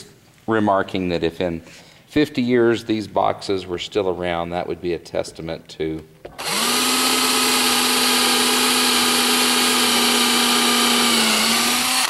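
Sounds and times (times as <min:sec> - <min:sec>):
cordless drill driving a screw: 0:06.4 - 0:12.0.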